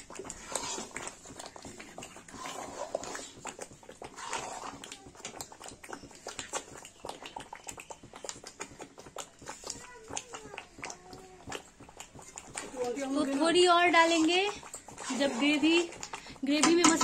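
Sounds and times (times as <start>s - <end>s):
ladle scraping metal pot: 0.0s - 1.6s, 2.2s - 4.9s, 11.5s - 17.0s
paste sizzling: 0.0s - 17.0s.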